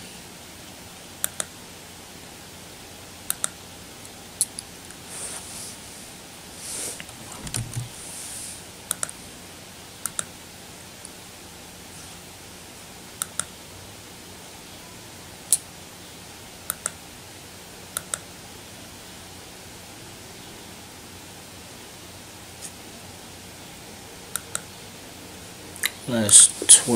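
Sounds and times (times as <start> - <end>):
background hiss: 0.0 - 26.9
computer mouse clicking: 1.2 - 1.5, 3.3 - 3.6, 7.0 - 7.9, 8.9 - 9.2, 10.0 - 10.3, 13.2 - 13.5, 16.7 - 17.0, 18.0 - 18.3, 24.3 - 24.7
soft rustling: 4.9 - 8.7.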